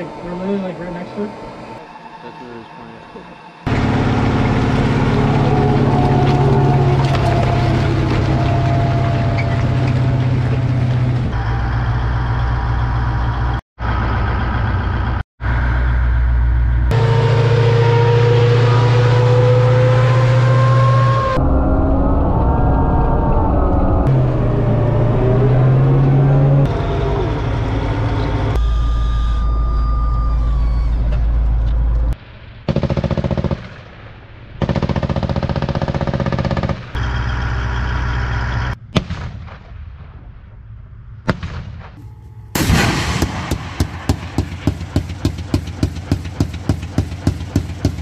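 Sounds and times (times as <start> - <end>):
armoured vehicle engine running: 3.2 - 32.2, 34.7 - 38.9, 42.0 - 48.0
single gunshots: 38.9 - 40.0, 41.2 - 42.0, 42.6 - 48.0
automatic cannon firing: 38.9 - 40.2, 41.2 - 48.0.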